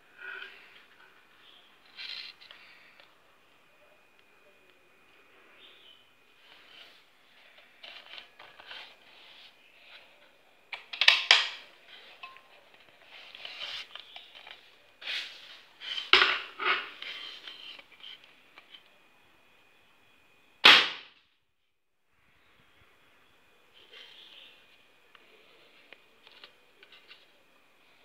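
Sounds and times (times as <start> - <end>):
air rifle shot: 20.6 - 21.2.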